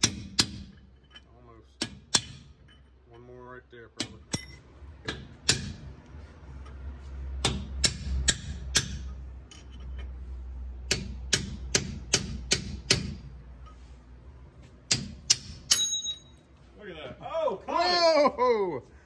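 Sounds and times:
hammer striking metal drift: 0:07.4 - 0:09.8, 0:14.9 - 0:16.4.

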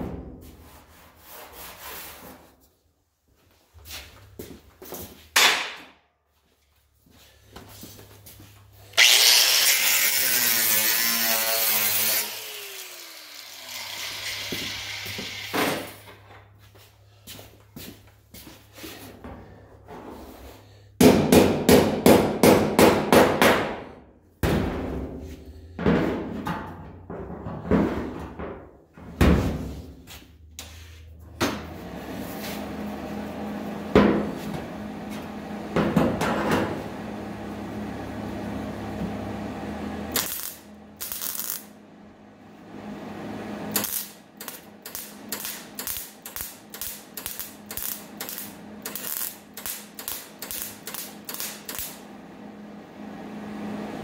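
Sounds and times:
tack-weld bursts: 0:09.0 - 0:16.0, 0:40.2 - 0:41.7, 0:43.7 - 0:52.0.

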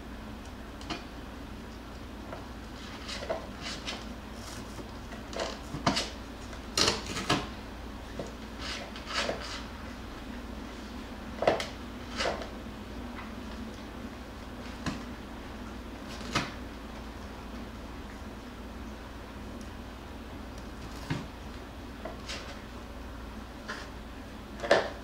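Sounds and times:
puppies scratching cardboard: 0:02.3 - 0:07.5, 0:08.1 - 0:10.0, 0:11.4 - 0:12.6, 0:22.0 - 0:22.7.

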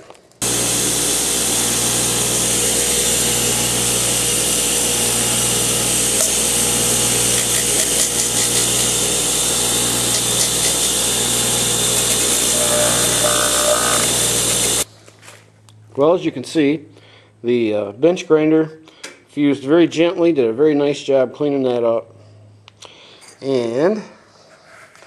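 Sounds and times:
bench grinder grinding rubber: 0:00.4 - 0:14.9.

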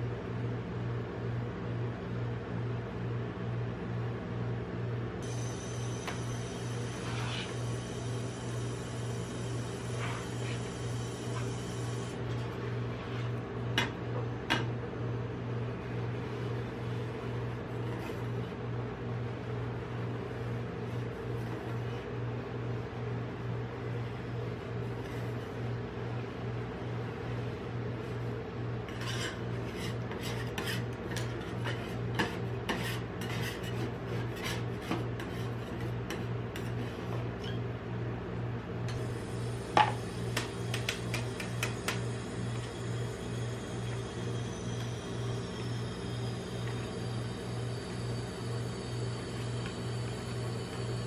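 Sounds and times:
steady low hum: 0:00.0 - 0:51.0
metal spatulas scraping steel plate: 0:28.9 - 0:36.8.

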